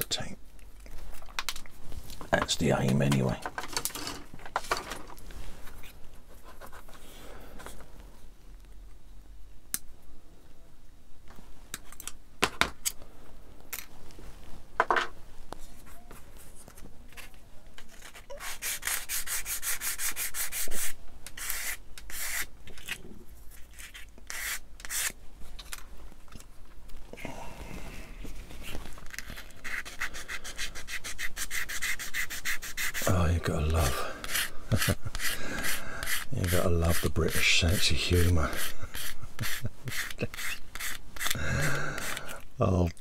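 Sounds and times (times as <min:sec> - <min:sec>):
plastic parts rubbed and scraped: 0:01.0 - 0:07.0, 0:15.6 - 0:26.5, 0:28.1 - 0:42.5.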